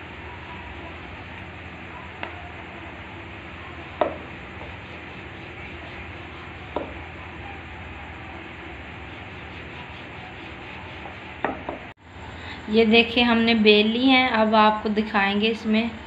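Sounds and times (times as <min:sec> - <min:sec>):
steady low hiss: 0:00.0 - 0:16.0
rolling pin knocking on stone: 0:04.0 - 0:04.7, 0:06.7 - 0:07.0, 0:11.4 - 0:11.9.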